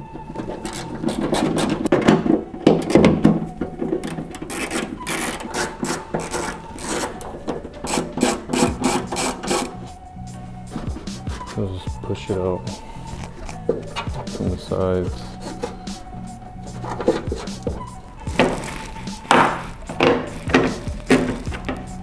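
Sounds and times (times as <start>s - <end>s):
hand ratchet clicking: 4.0s - 9.8s.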